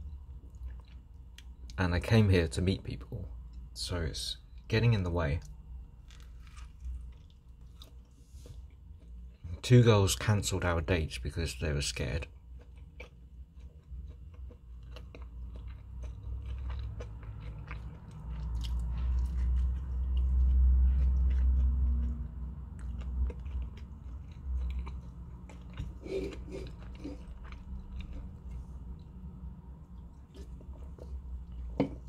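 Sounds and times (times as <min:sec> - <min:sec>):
person chewing food: 0:00.0 - 0:01.8, 0:06.0 - 0:09.6, 0:12.3 - 0:32.0.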